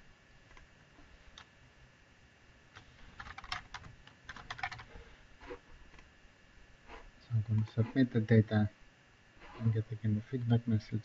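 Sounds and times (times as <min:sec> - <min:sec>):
typing on computer keyboard: 0:02.8 - 0:04.9.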